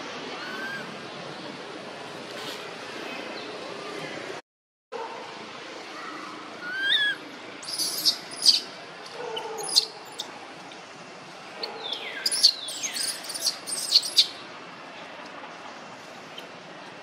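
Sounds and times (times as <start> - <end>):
birds chirping: 6.6 - 10.3, 11.5 - 14.5.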